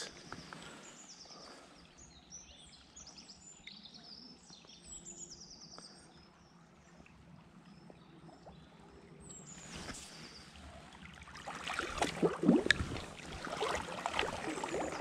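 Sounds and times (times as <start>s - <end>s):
faint songbirds trilling: 0.0s - 6.9s.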